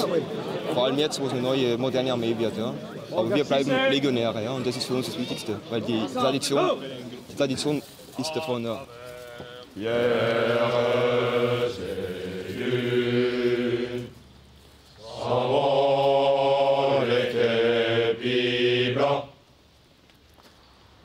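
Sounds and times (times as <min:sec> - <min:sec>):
men singing in unison: 0:09.4 - 0:14.2, 0:15.0 - 0:19.3.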